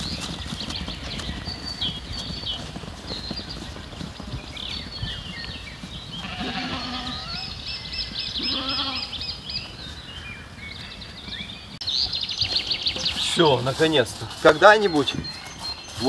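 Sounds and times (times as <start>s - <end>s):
high bird chirps: 4.7s - 16.0s
livestock bleating: 6.2s - 7.4s, 8.4s - 9.2s.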